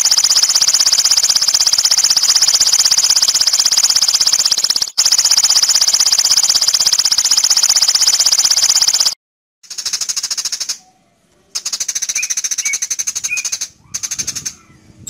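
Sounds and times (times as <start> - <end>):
lovebird chattering trill: 11.6 - 14.8.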